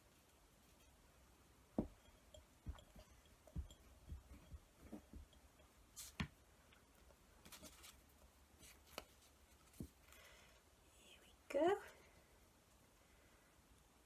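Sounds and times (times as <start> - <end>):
light taps on glass jar: 1.8 - 5.8.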